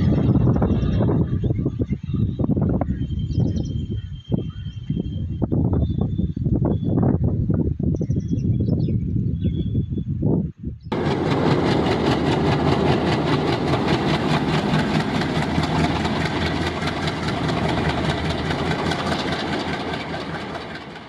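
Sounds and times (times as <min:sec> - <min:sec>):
diesel locomotive engine running: 0:10.9 - 0:21.0.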